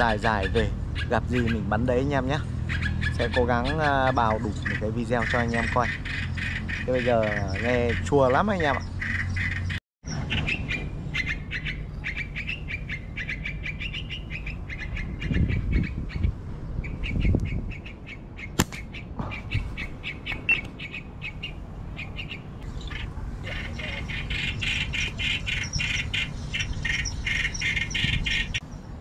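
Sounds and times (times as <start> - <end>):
birds chirping rapidly: 0.0 - 29.0
sharp click: 18.6 - 19.4.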